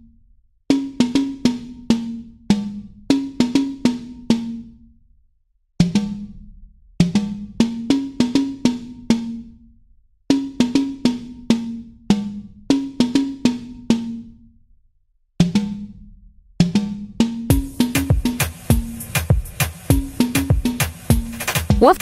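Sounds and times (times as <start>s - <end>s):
percussion music: 16.6s - 22.0s.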